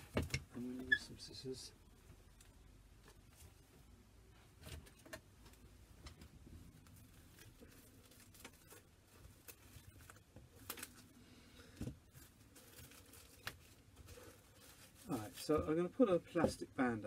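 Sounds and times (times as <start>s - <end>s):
cling film rustling: 4.6s - 15.8s.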